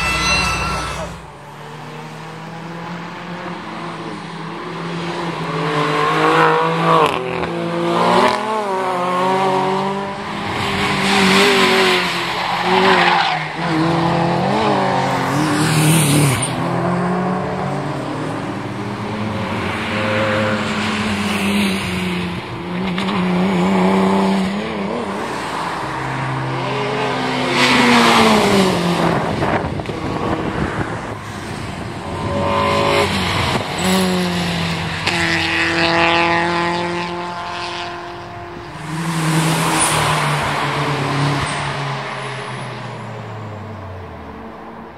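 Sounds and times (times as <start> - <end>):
race cars passing at speed: 0.0 - 44.9.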